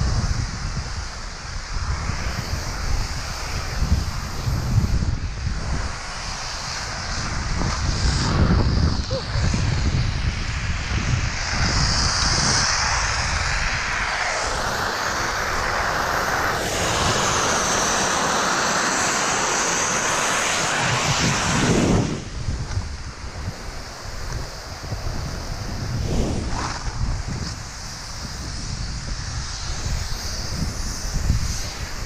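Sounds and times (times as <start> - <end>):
skis hissing through snow: 0.0 - 32.0
wind rushing on microphone: 0.0 - 32.0.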